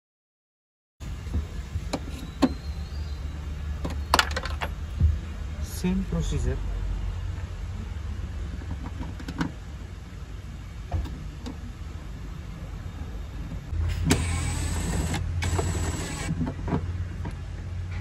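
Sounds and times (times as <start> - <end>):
cordless drill motor running: 14.1 - 16.3.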